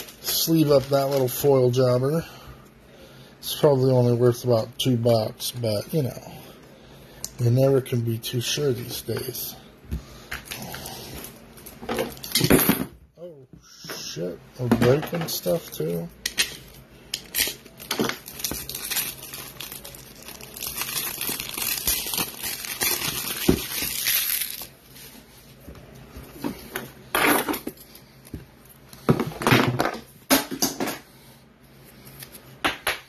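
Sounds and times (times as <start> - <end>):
plastic packaging crinkling: 16.6 - 24.8.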